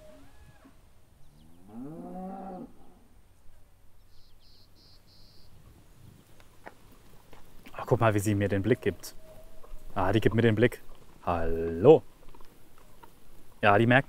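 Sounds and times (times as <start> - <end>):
cow mooing: 1.4 - 3.1.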